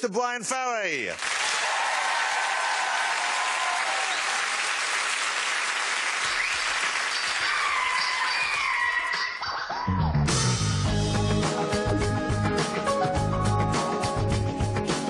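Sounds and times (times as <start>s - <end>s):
audience applauding: 1.1s - 9.0s.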